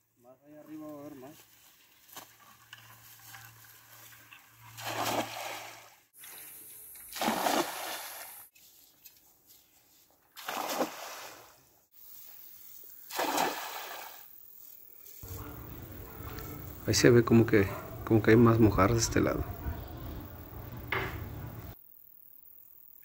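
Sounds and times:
net splashing into water: 0:04.7 - 0:06.1, 0:07.1 - 0:08.4, 0:10.4 - 0:11.6, 0:13.1 - 0:14.3.

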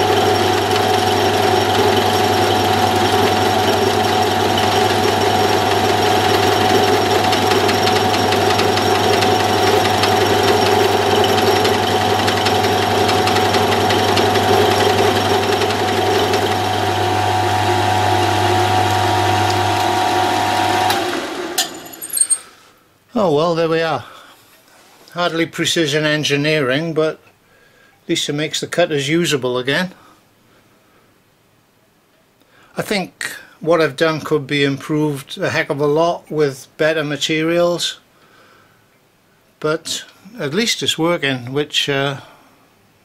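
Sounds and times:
end mill cutting aluminium whine: 0:00.0 - 0:22.0
milling machine spindle humming: 0:00.0 - 0:22.3.

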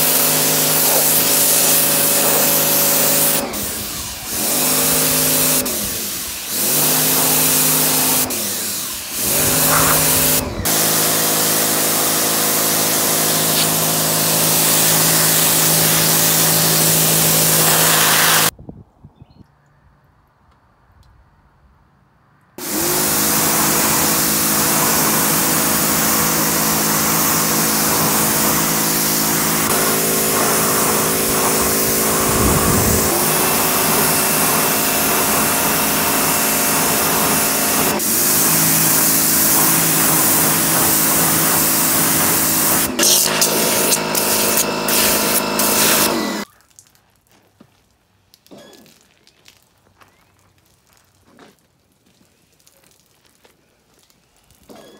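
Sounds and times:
pressure washer running: 0:00.0 - 0:18.5, 0:22.6 - 0:46.5.

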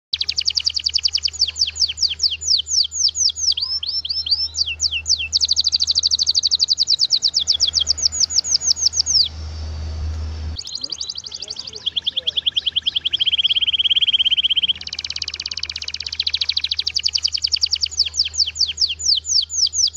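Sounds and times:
canary singing trills: 0:00.1 - 0:09.8, 0:10.5 - 0:19.9
low hum: 0:04.3 - 0:19.2.

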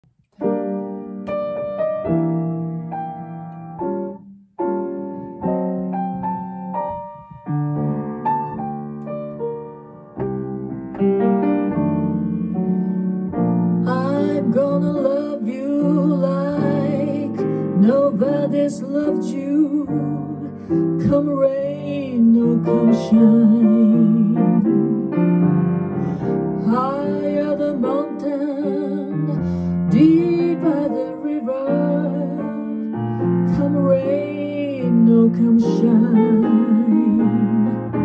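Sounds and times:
jazz piano: 0:00.0 - 0:38.0
woman singing with vibrato: 0:13.9 - 0:24.6, 0:26.6 - 0:32.8, 0:33.5 - 0:37.8.

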